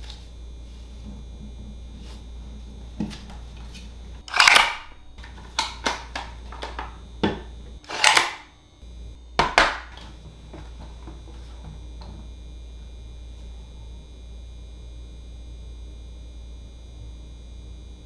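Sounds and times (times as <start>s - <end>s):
wooden pieces clacking and knocking: 4.3s - 6.9s, 7.9s - 8.5s, 9.4s - 10.0s.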